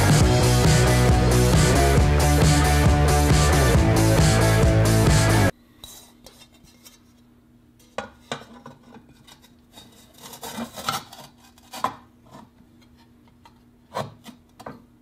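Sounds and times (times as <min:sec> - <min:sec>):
plastic scraping and rubbing: 0:08.6 - 0:13.1.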